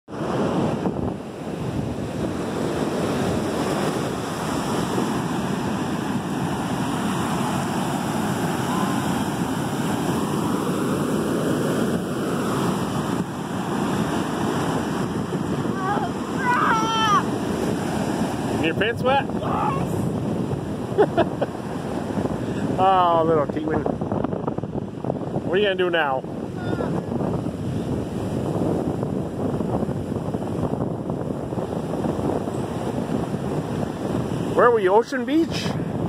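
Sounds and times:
ocean surf breaking: 0:00.1 - 0:36.0
wind buffeting microphone: 0:00.1 - 0:36.0
high-pitched voice: 0:15.8 - 0:17.3, 0:26.6 - 0:27.0.

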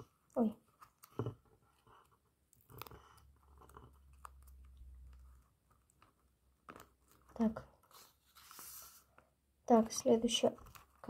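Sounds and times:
paper rustling: 0:05.9 - 0:09.2.

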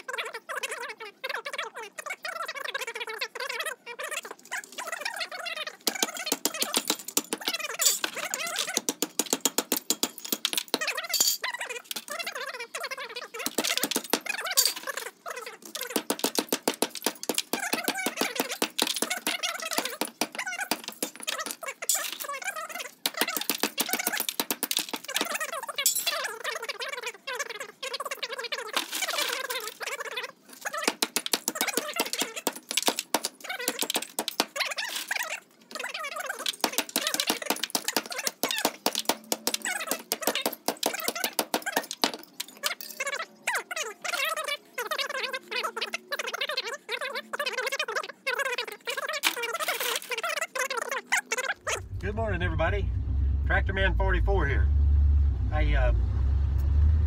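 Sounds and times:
hatchet chopping metal strip: 0:36.5 - 0:42.2
high chirpy warbling: 0:50.2 - 0:54.7.

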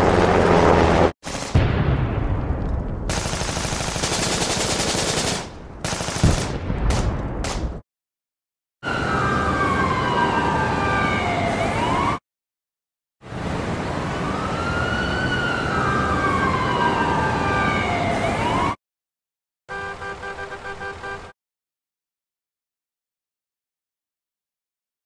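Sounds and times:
steady siren tone: 0:08.8 - 0:12.2, 0:14.1 - 0:18.8
wailing siren: 0:08.8 - 0:12.2, 0:13.8 - 0:18.8.

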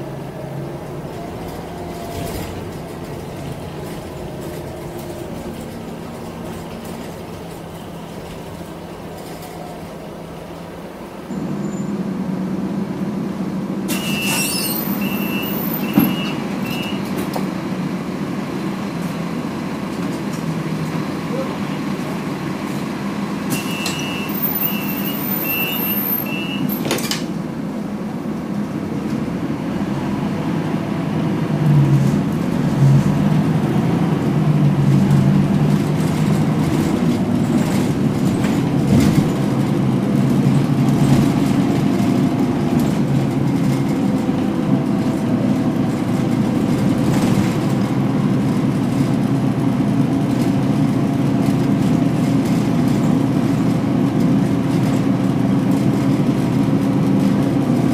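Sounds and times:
bus engine running under load: 0:00.0 - 0:57.9
door-warning beeps: 0:14.0 - 0:17.0, 0:23.6 - 0:26.9
bus doors shutting knock: 0:15.4 - 0:17.6, 0:26.4 - 0:27.5.

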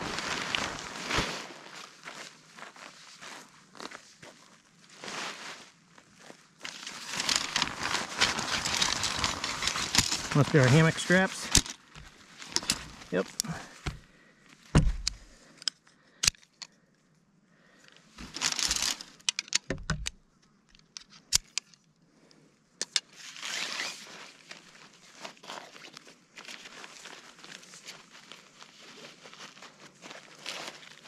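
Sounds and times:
fabric and straps rustling: 0:00.0 - 0:02.5, 0:04.8 - 0:15.5, 0:18.2 - 0:20.1, 0:23.1 - 0:31.0.

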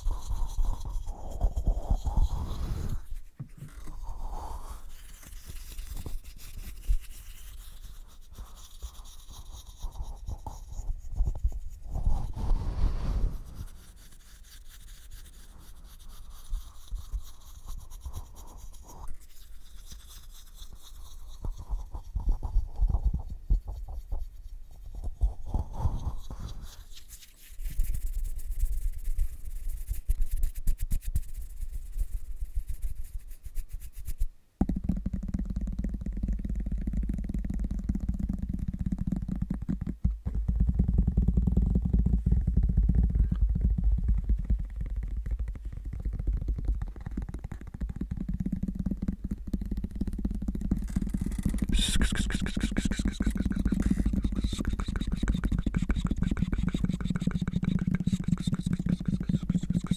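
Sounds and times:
brush rustling against microphone: 0:00.0 - 0:21.5, 0:23.9 - 0:34.3, 0:50.7 - 0:59.9
low rumble: 0:11.9 - 0:13.9.

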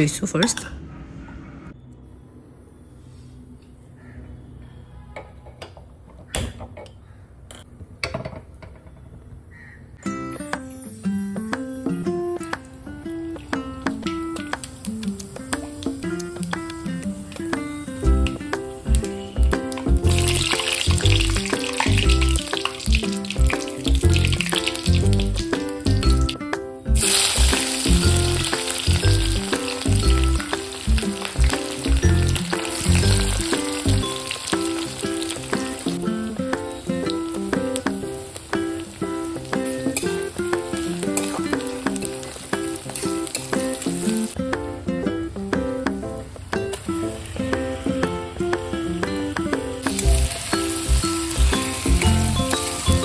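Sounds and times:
plucked guitar music: 0:10.1 - 0:53.0
spices sizzling in hot oil: 0:14.5 - 0:44.4, 0:48.6 - 0:53.0.

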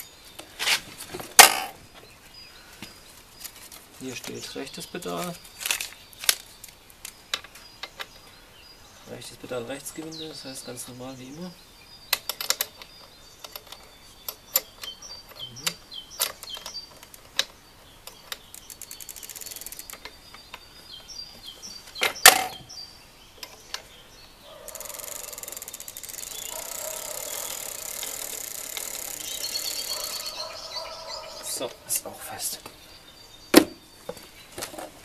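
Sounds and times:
freewheel ratcheting: 0:18.4 - 0:20.5, 0:24.7 - 0:30.3.

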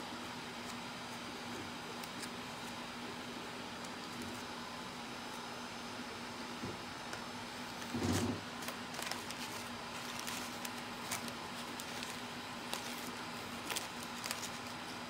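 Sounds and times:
steady low hum: 0:00.0 - 0:15.0
clicks and rustling of paper: 0:01.9 - 0:02.8, 0:07.1 - 0:15.0.

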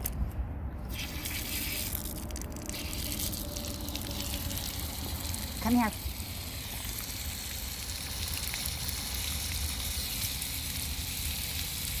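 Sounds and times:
low rumble: 0:00.1 - 0:07.7
droplets pattering: 0:00.9 - 0:12.0
sprinkler spraying water: 0:00.9 - 0:12.0.

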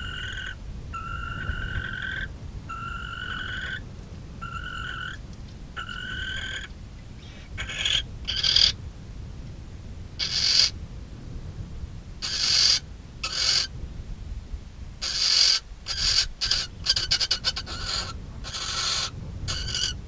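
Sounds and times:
owl hissing screeches: 0:00.0 - 0:03.8, 0:04.4 - 0:05.2, 0:05.8 - 0:08.8, 0:10.2 - 0:10.8, 0:12.2 - 0:13.7, 0:15.0 - 0:20.0
owl buzzy calls: 0:00.0 - 0:05.2, 0:05.8 - 0:08.8, 0:10.2 - 0:10.8, 0:12.2 - 0:13.8, 0:15.0 - 0:20.0.

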